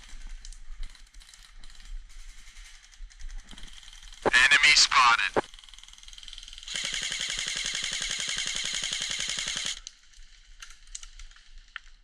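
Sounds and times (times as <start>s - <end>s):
airsoft rifle full-auto burst: 6.4s - 9.8s.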